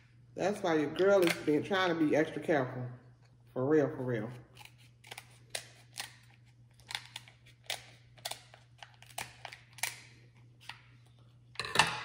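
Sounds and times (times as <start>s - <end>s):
shellfish shells cracking: 4.6s - 10.8s.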